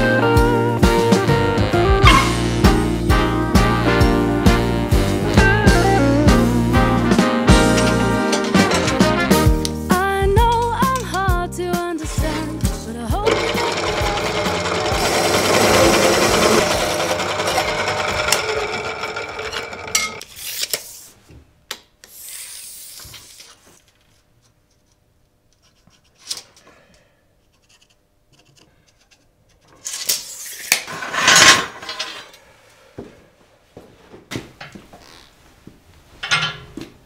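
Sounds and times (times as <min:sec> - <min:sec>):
cold saw cutting steel: 0:02.0 - 0:02.5, 0:07.5 - 0:09.5, 0:13.2 - 0:20.2
knocks and scrapes on steel workbench: 0:07.5 - 0:09.4, 0:30.8 - 0:32.3.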